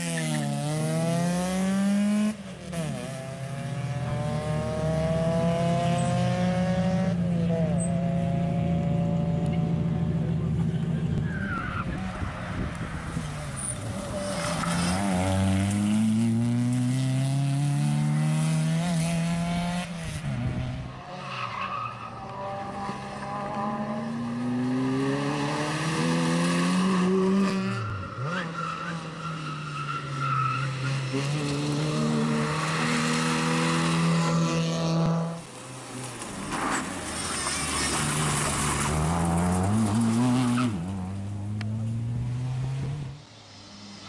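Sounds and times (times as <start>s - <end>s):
car engine revving through gears: 0.0s - 9.8s, 13.6s - 21.1s, 22.2s - 29.0s, 30.2s - 35.4s, 37.6s - 43.2s.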